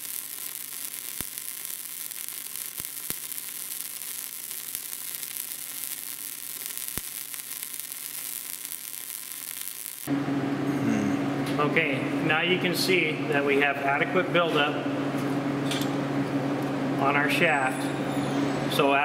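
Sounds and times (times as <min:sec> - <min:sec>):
sharp welding pops: 0:00.0 - 0:10.1
welding arc crackling: 0:00.0 - 0:10.1.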